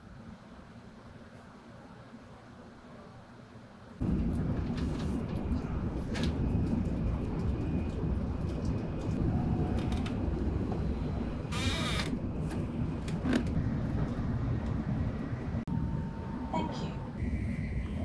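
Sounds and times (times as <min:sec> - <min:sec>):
train interior rumble: 0:04.0 - 0:18.0.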